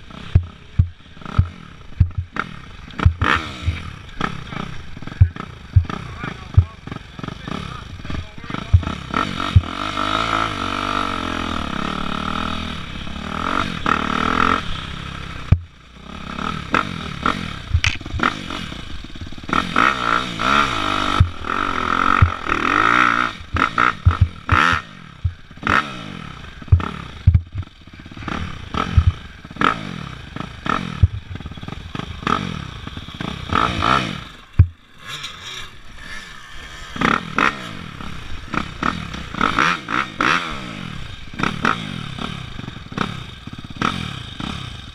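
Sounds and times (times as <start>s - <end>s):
dirt bike engine revving: 0.0s - 44.9s
knocks and clatter from bike: 0.2s - 7.0s, 8.1s - 10.0s, 15.4s - 15.8s, 16.7s - 18.4s, 23.5s - 25.9s, 26.6s - 29.8s, 30.4s - 32.5s, 33.2s - 35.6s.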